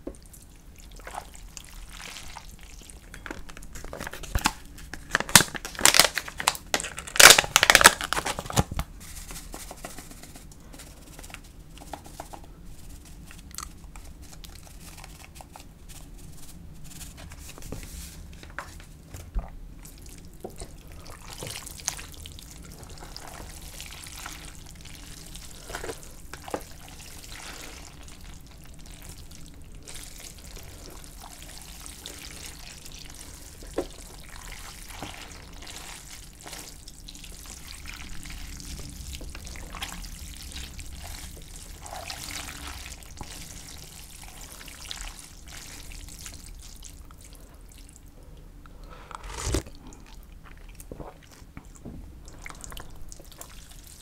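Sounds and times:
plastic pouch crinkling: 3.3 - 12.2.

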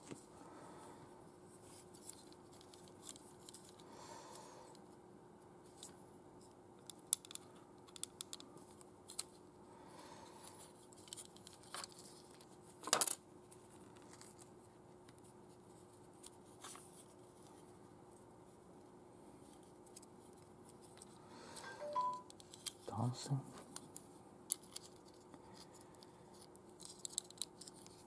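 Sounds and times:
plastic toy parts clicking: 6.8 - 8.4, 26.8 - 28.0.

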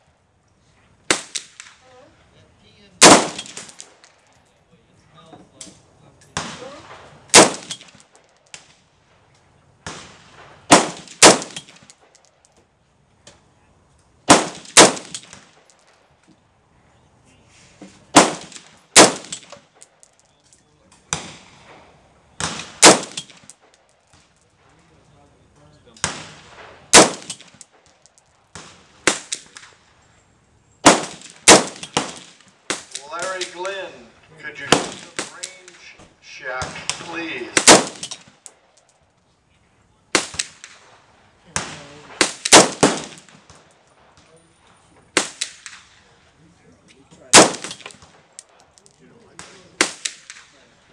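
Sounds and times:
rifle shots with short echo: 3.0 - 4.0, 6.4 - 8.8, 9.8 - 12.0, 14.3 - 15.9, 18.1 - 19.9, 21.1 - 23.8, 26.0 - 27.9, 28.5 - 29.9, 30.8 - 33.9, 34.5 - 38.8, 40.1 - 44.2, 45.1 - 46.0, 47.3 - 48.8, 49.4 - 50.7.

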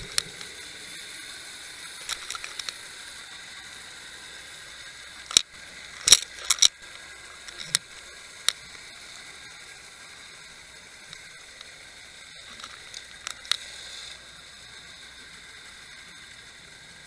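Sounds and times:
underwater hiss: 0.0 - 17.0
sharp clicks and knocks: 5.3 - 6.8.

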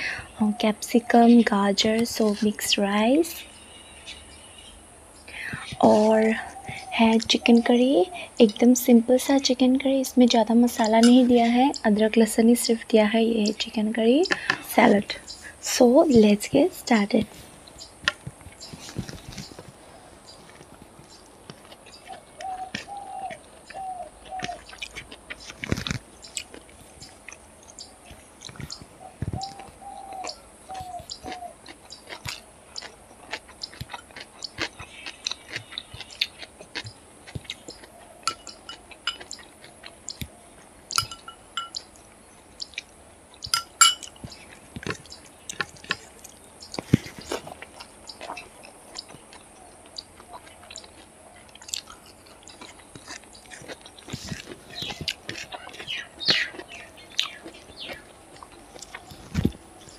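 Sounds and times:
bird chirping: 0.0 - 59.9
chewing: 5.4 - 9.5, 17.2 - 59.9
fingers mixing rice on a plate: 28.0 - 42.1, 42.7 - 59.9.

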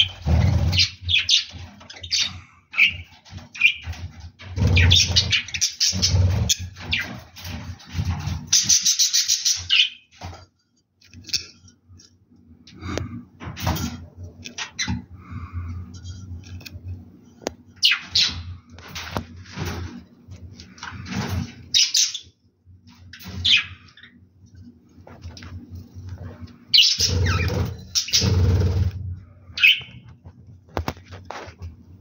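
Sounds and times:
budgerigars chirping: 0.0 - 4.0, 4.6 - 7.2, 8.5 - 10.0, 21.7 - 22.3, 23.4 - 24.2, 26.7 - 28.8, 29.6 - 29.9.

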